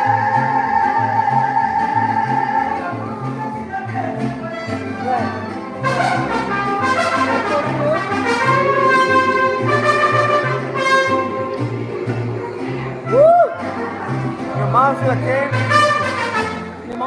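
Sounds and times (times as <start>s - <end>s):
mariachi band playing: 0.0s - 17.0s
trumpets playing melody: 5.8s - 11.6s, 15.5s - 17.0s.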